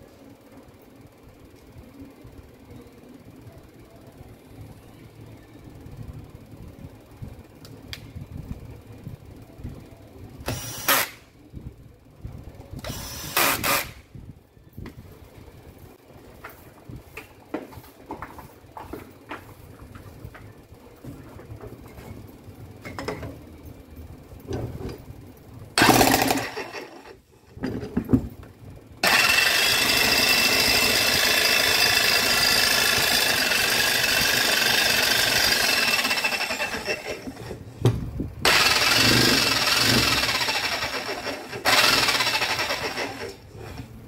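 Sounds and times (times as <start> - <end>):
electric demolition hammer running: 10.5 - 11.2, 12.8 - 14.0, 25.8 - 27.2, 29.0 - 37.6, 38.4 - 43.4.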